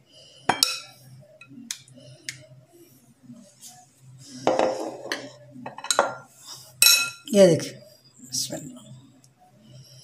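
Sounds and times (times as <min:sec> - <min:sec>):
china plate clinking: 0:06.8 - 0:07.3.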